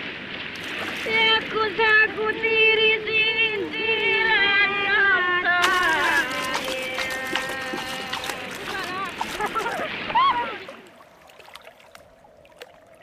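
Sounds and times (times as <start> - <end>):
woman singing unaccompanied: 1.0 - 9.6
surf rushing: 5.6 - 11.0.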